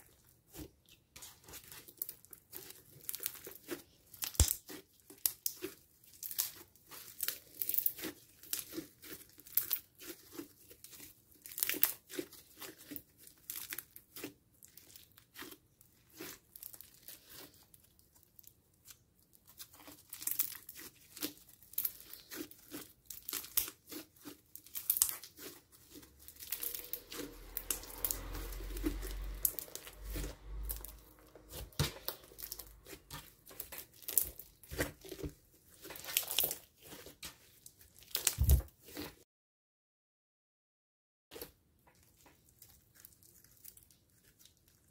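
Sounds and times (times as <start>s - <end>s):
slime bubbles popping and crackling: 1.6s - 10.6s, 20.0s - 37.2s, 38.0s - 39.1s
low rubbing sound: 26.0s - 33.2s.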